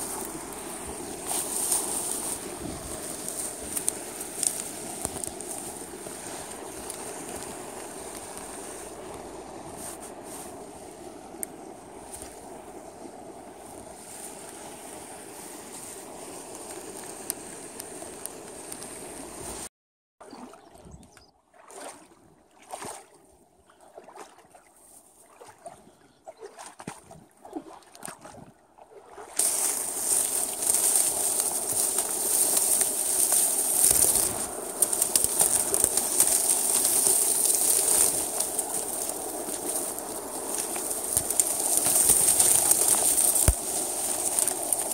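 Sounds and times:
dry reeds crackling and rustling: 0:00.0 - 0:19.7, 0:29.1 - 0:44.9.

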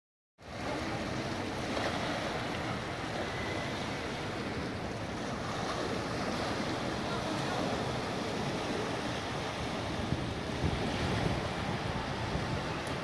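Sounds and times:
sea waves washing on shore: 0:00.4 - 0:13.0
wind rumbling on microphone: 0:04.5 - 0:13.0.

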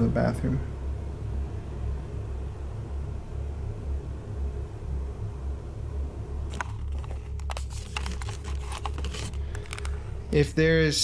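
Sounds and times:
steady low hum: 0:00.0 - 0:11.0
camera handling clicks and rustles: 0:06.5 - 0:10.0.

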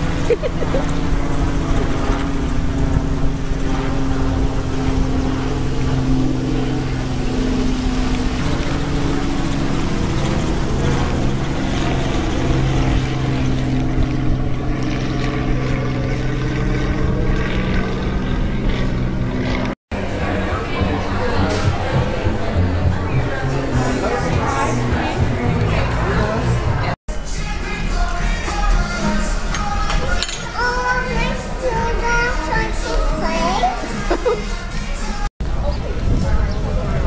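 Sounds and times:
motor-like drone with low hum: 0:00.0 - 0:27.0.

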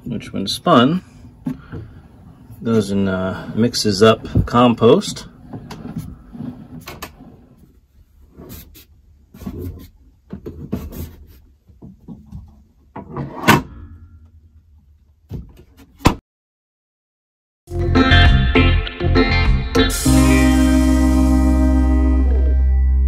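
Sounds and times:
plastic clunks and scraping: 0:04.2 - 0:07.5, 0:08.3 - 0:13.7.

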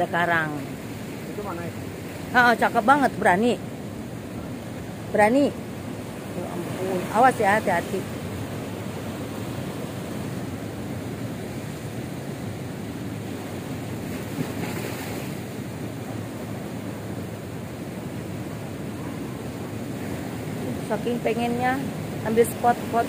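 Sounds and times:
surf breaking on rocky shore: 0:04.1 - 0:20.8.

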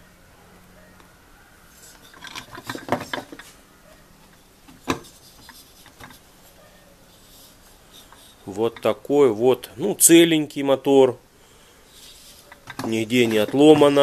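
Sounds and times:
metal scraping and clattering on wood: 0:01.7 - 0:03.6, 0:04.2 - 0:09.1, 0:11.9 - 0:14.0.

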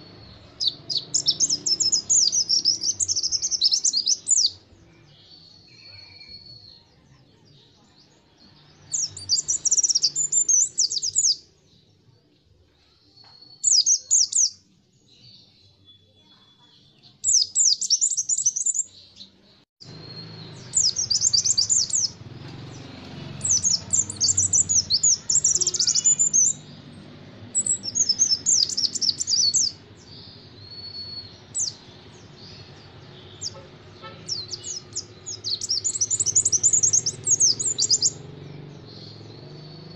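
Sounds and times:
bird chattering song: 0:00.0 - 0:11.9, 0:13.2 - 0:39.9.

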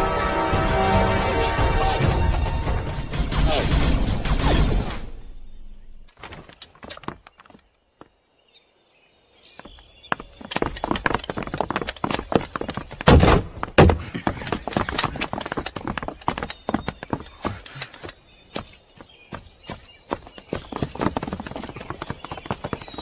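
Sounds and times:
running footsteps: 0:06.1 - 0:07.7, 0:09.5 - 0:23.0
thuds and heavy hits: 0:13.0 - 0:14.5.

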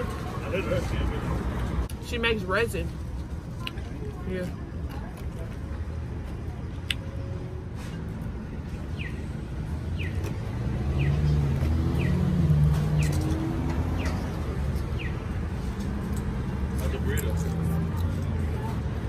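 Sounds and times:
steady traffic noise: 0:00.0 - 0:19.0
car passing: 0:10.0 - 0:18.0.

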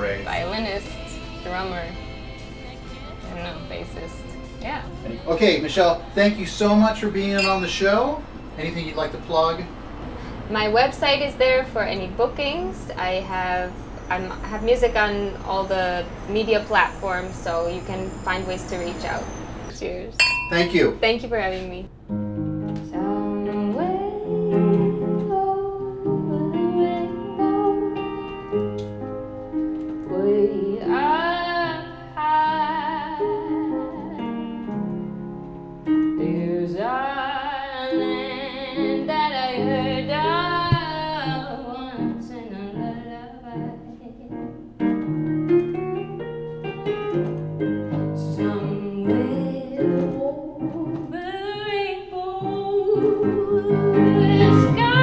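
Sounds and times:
piano accompaniment: 0:00.0 - 0:14.3, 0:21.6 - 0:55.0
woman singing: 0:00.3 - 0:06.2, 0:22.9 - 0:28.4, 0:30.1 - 0:34.6, 0:36.2 - 0:44.6, 0:47.9 - 0:55.0.

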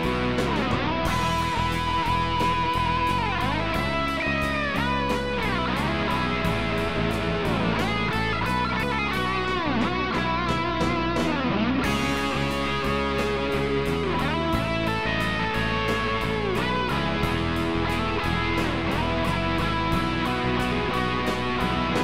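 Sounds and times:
guitar-led instrumental music: 0:00.0 - 0:22.0.

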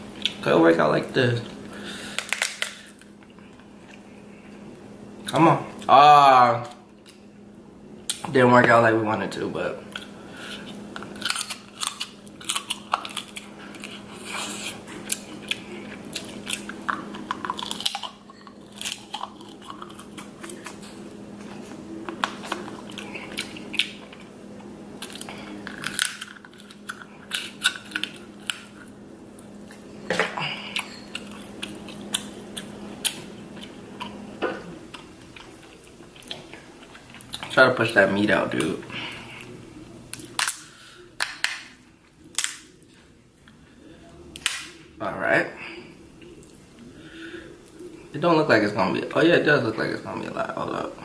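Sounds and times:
steady low hum: 0:00.0 - 0:51.0
crab shells cracking: 0:02.1 - 0:03.1, 0:11.0 - 0:14.0, 0:15.1 - 0:20.9, 0:25.0 - 0:28.8, 0:40.1 - 0:41.7, 0:42.3 - 0:42.8
chewing: 0:09.9 - 0:29.8, 0:30.6 - 0:34.2, 0:34.9 - 0:37.6.

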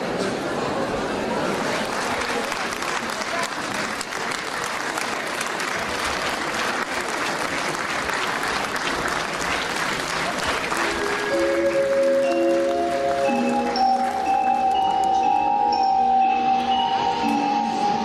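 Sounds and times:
large audience applauding: 0:01.5 - 0:15.0
music with held notes: 0:10.6 - 0:18.0.

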